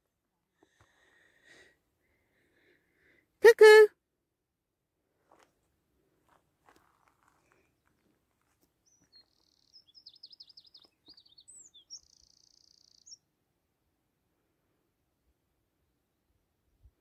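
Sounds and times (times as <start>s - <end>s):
songbird singing buzzy trills: 8.8s - 13.3s.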